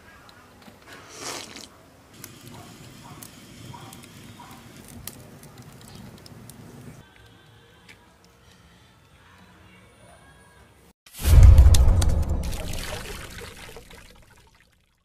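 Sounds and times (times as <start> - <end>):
wood fire crackling and popping: 2.2 - 7.0
low rush of flame: 11.2 - 13.1.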